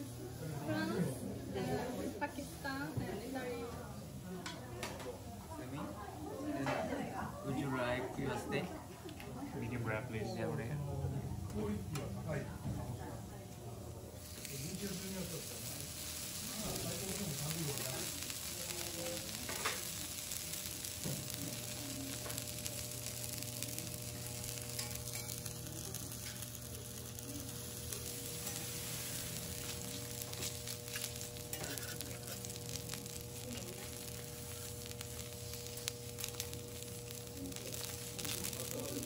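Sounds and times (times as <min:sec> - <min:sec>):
beef sizzling on a griddle: 0:00.0 - 0:08.5, 0:14.0 - 0:39.0
steady low hum: 0:10.6 - 0:39.0.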